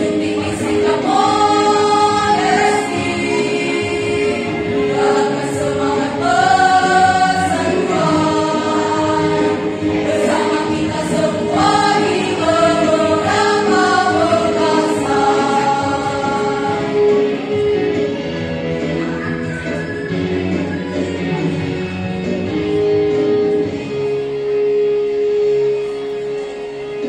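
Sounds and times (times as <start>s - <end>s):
women's choir singing: 0.0s - 17.2s.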